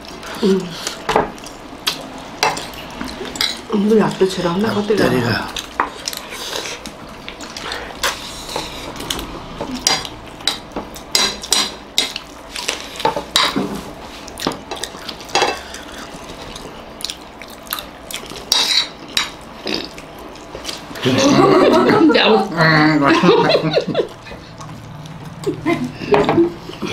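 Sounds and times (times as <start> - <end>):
cutlery scraping a plate: 18.5 - 19.3.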